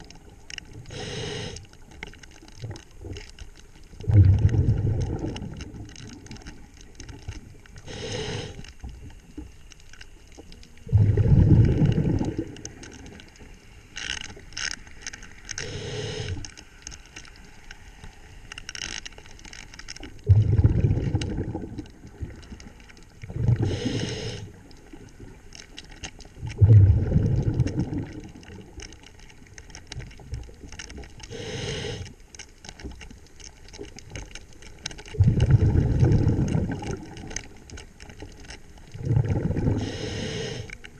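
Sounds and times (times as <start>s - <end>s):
exhaled bubbles rumbling: 0.0s - 9.5s, 10.6s - 13.5s, 20.1s - 32.0s, 33.8s - 40.7s
scuba regulator inhale hiss: 0.9s - 1.7s, 7.8s - 8.8s, 15.6s - 16.6s, 23.4s - 24.6s, 31.3s - 32.2s, 39.6s - 40.8s.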